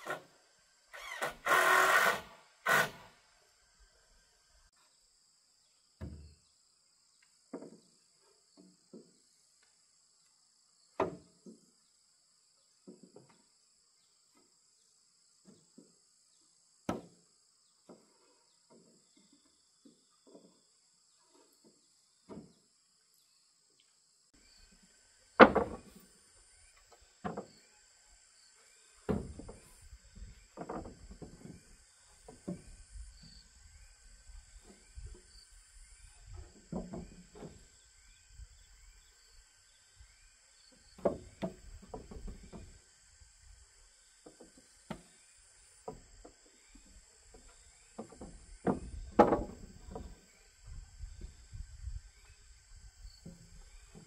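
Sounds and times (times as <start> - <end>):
high insect drone: 0.0 - 7.1, 24.1 - 54.0
wooden boards knocking: 25.4 - 26.0, 41.0 - 42.8, 48.0 - 50.2.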